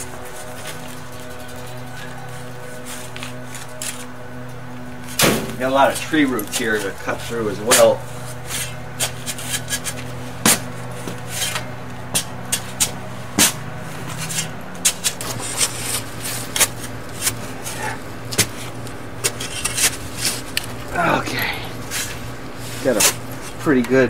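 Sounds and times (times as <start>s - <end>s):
steady low hum: 0.0s - 24.0s
shovel digging into soil: 7.6s - 20.7s.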